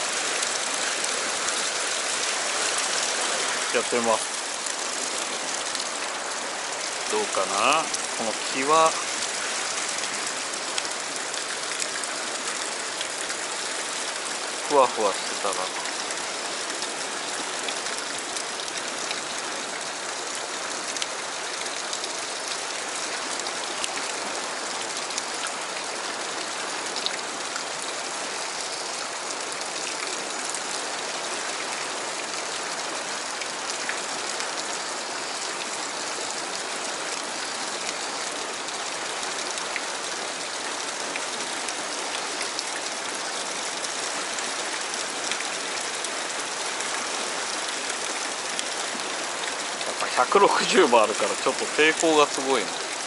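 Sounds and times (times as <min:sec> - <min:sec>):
river rushing over rocks: 0:00.0 - 0:21.5, 0:39.6 - 0:53.0.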